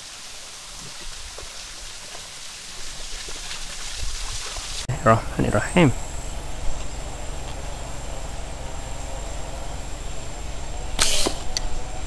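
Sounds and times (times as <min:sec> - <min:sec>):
slingshot snapping: 0:11.0 - 0:11.6.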